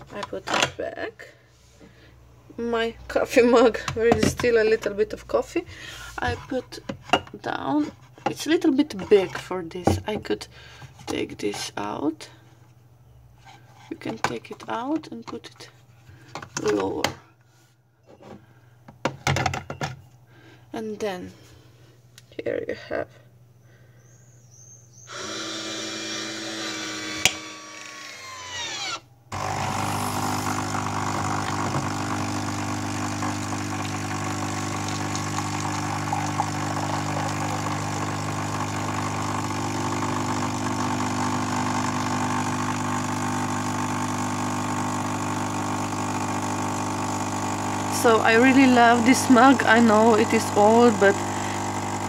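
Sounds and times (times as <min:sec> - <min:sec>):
coffee machine pump humming: 0:25.1 - 0:52.0.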